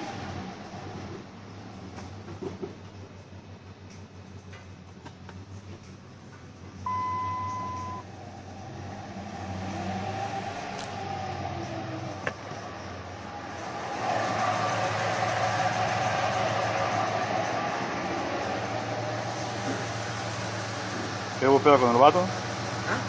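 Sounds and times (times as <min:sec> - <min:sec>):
electronic beep: 0:06.9 - 0:08.0
truck engine revving: 0:06.9 - 0:23.0
loud rushing noise: 0:13.1 - 0:21.4.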